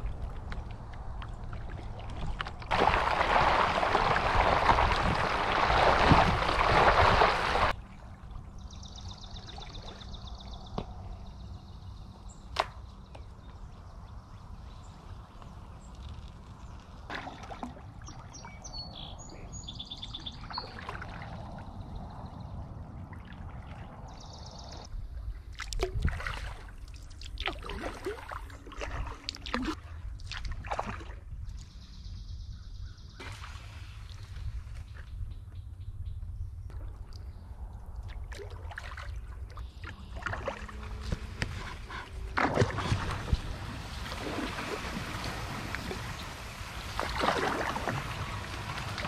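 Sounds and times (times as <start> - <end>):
kayak paddle sloshing in water: 0.0 - 7.8, 25.5 - 31.3, 38.3 - 49.0
loud splashes: 2.7 - 7.7, 41.9 - 49.0.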